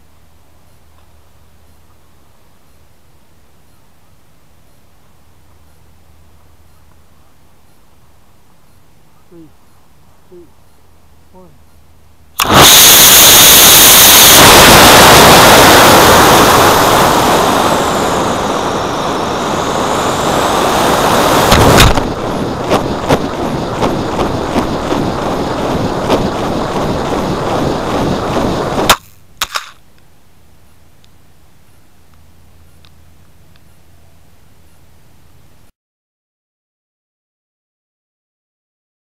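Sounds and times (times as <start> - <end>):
rushing wind noise: 12.4 - 29.0
rocket motor roaring hiss: 12.4 - 29.1
ejection charge bang: 21.3 - 29.0.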